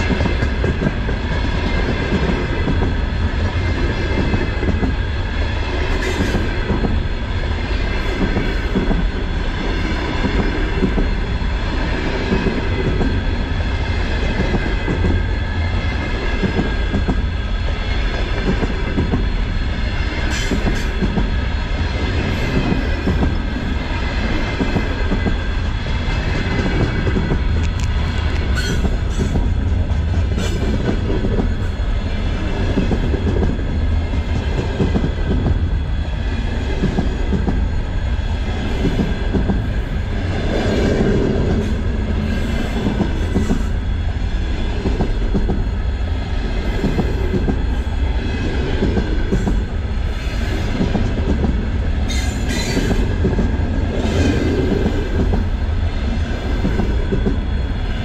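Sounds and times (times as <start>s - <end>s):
train wheels rumbling on rails: 0.0s - 58.0s
high wheel squeal: 28.5s - 29.4s.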